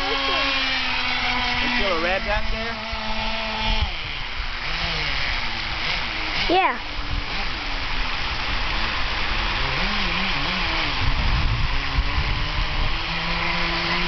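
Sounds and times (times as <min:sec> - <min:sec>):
model boat engine running: 0:00.0 - 0:14.0.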